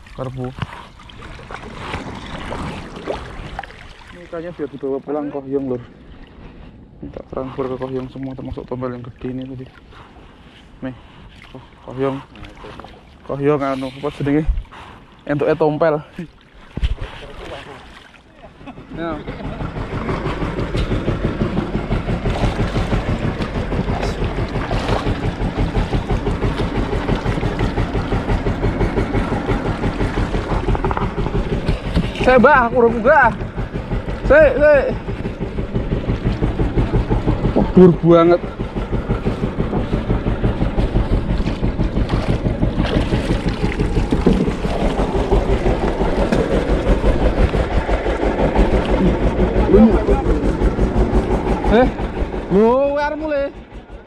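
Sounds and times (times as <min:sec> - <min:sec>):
boat engine idling: 0:00.0 - 0:54.0
wind buffeting microphone: 0:19.0 - 0:54.0.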